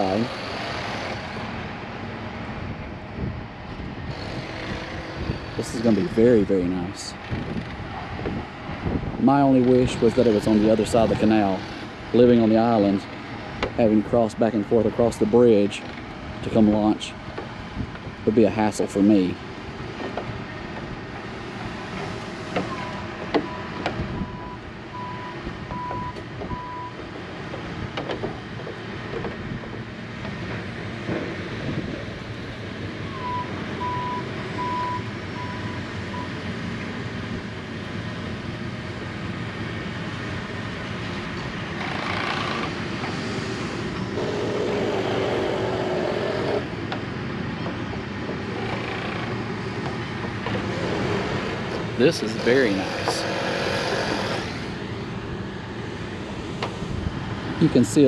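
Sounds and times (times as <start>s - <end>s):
machinery and vehicle noise: 0.0s - 58.0s
reversing beeps: 22.7s - 27.0s, 33.1s - 36.4s.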